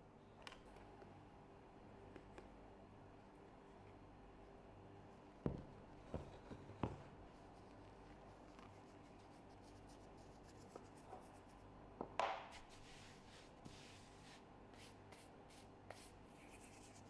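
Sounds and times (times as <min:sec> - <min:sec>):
hand swishing flour on marble: 0:12.5 - 0:17.0.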